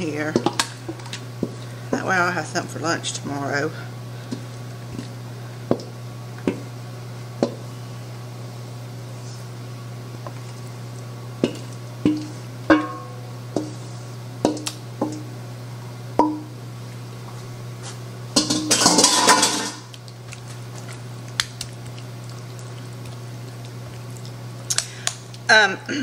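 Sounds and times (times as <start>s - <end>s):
spatula tapping metal bowl: 11.5s - 13.8s, 16.2s - 16.5s
utensils and dishes clattering: 18.4s - 19.9s.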